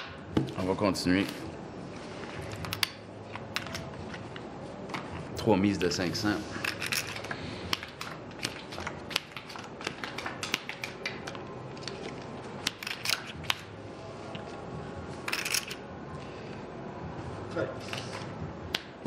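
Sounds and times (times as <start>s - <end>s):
playing cards dealt clicking: 6.7s - 13.7s.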